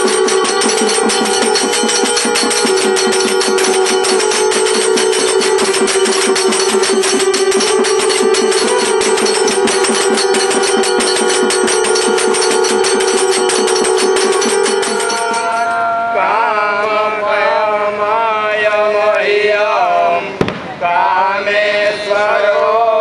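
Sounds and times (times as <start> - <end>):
fast percussion beat: 0.0 - 15.8
sharp knock: 0.0 - 15.8
conch shells blown: 0.0 - 16.5
men chanting a hymn: 0.0 - 23.0.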